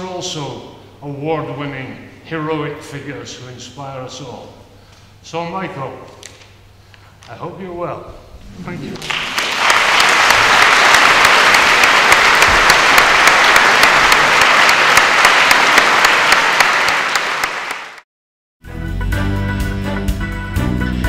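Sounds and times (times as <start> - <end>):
audience applauding: 9.0 - 18.0.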